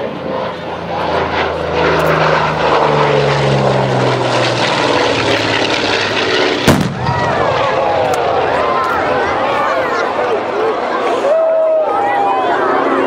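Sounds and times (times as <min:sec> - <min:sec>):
propeller plane engines droning: 0:00.0 - 0:13.0.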